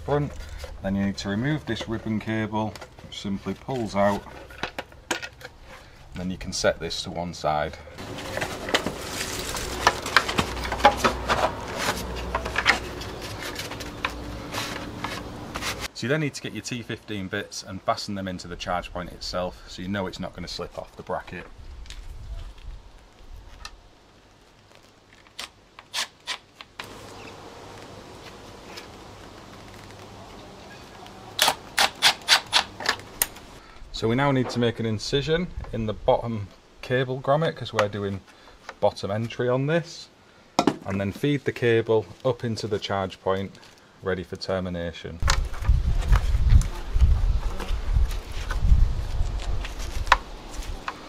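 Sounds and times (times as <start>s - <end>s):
hands rubbing plastic casing: 8.0s - 15.9s.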